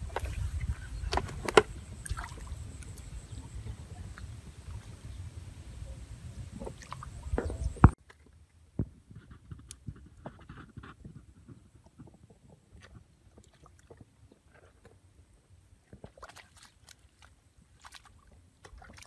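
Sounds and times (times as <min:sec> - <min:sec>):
small wet splashes: 0:02.0 - 0:03.1, 0:15.9 - 0:19.0.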